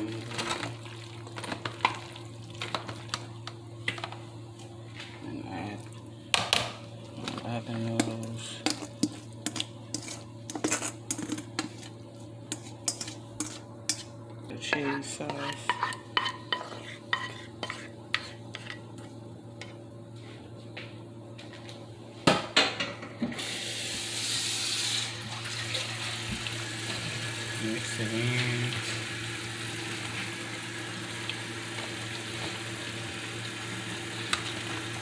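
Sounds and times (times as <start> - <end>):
spoon scraping metal pot: 8.6 - 11.9, 12.5 - 14.1, 14.7 - 18.8.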